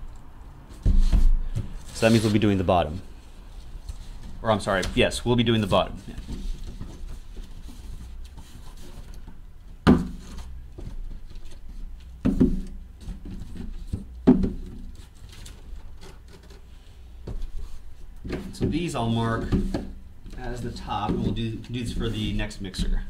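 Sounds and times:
plastic wrap rustling on cardboard: 0.7 - 9.4.

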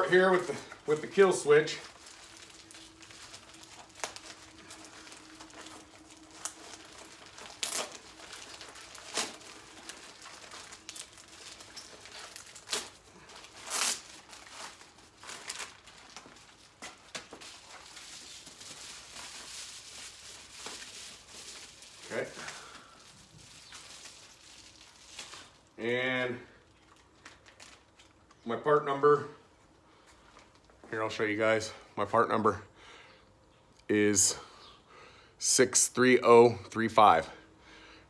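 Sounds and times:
plastic and paper crinkling: 0.0 - 25.8, 26.6 - 28.5, 30.1 - 30.9
faint steady hum: 0.0 - 38.0.

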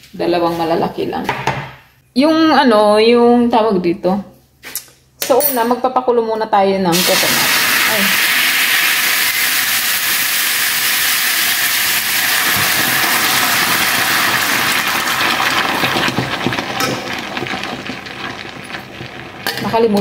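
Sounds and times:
coconut milk sizzling in frying pan: 6.9 - 20.0.

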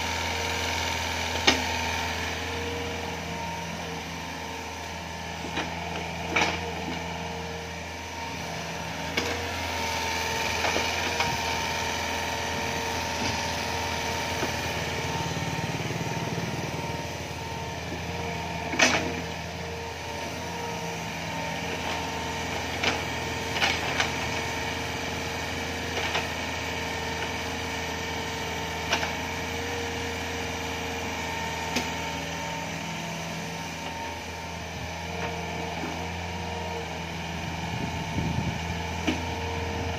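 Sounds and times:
diesel excavator engine running: 0.0 - 39.9
sharp knocks of digging machine: 1.4 - 1.7, 18.6 - 19.3.

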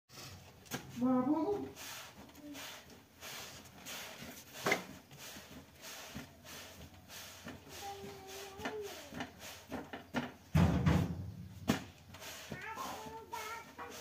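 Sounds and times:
light knocks and rubbing: 3.6 - 14.0
loud low thump: 10.5 - 11.8.

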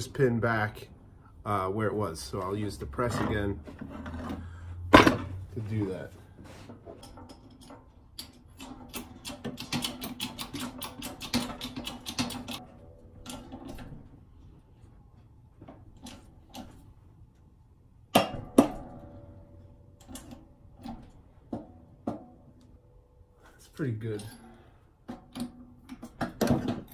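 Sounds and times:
metal clicks and creaks: 6.8 - 14.5, 18.8 - 22.8.

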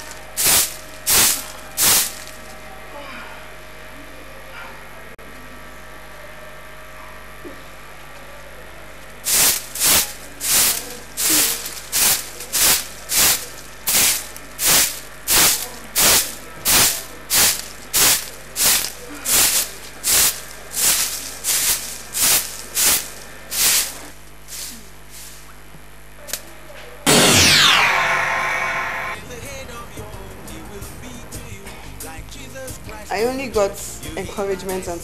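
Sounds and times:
broom sweeping leaves on paving: 0.0 - 2.4, 9.2 - 25.5.

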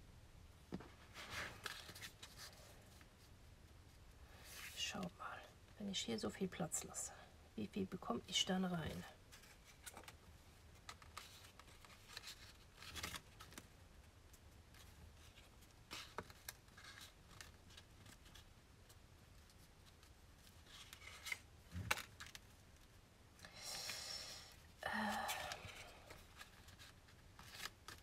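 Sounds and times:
paper rustling and scraping: 0.8 - 3.2, 10.8 - 13.6, 19.3 - 22.5, 25.1 - 28.0.

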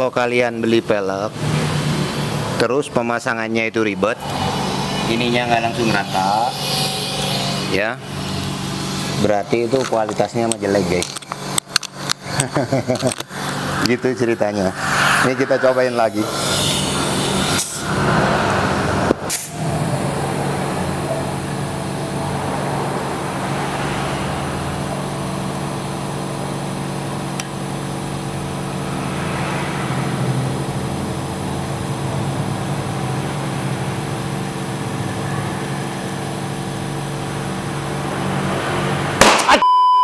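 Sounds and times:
machine hum: 3.9 - 9.2, 11.1 - 39.4
compressed air hissing through hose: 4.1 - 10.2, 12.0 - 19.6
sudden loud sound: 28.4 - 31.6, 37.8 - 39.7.

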